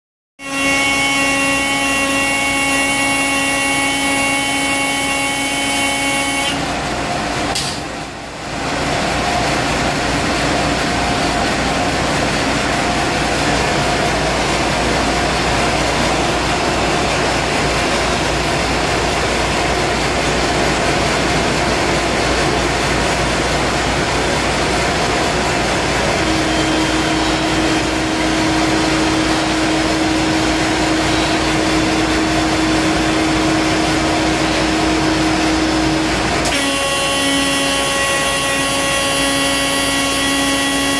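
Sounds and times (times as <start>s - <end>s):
pitched air horn blast: 0.4s - 6.7s, 26.1s - 40.9s
loud steady rushing noise: 2.5s - 40.9s.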